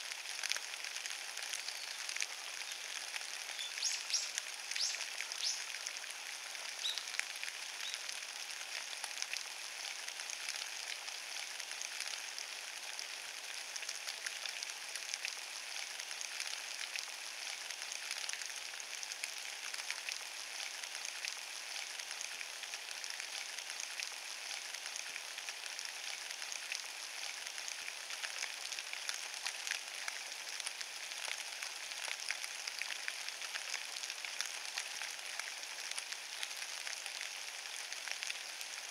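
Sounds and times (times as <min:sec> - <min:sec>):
rain on wet leaves: 0:00.0 - 0:38.9.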